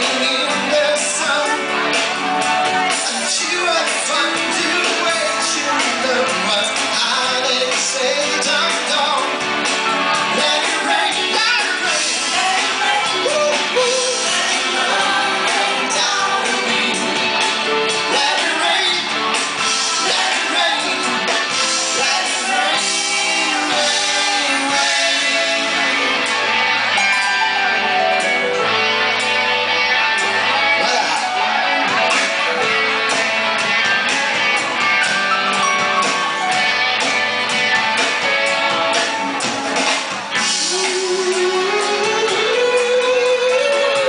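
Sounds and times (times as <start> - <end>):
lead singer singing: 0.0 - 27.1, 38.0 - 44.0
bass: 0.0 - 44.0
drums: 0.0 - 44.0
electric guitars: 0.0 - 44.0
backing vocalists singing: 10.1 - 27.1.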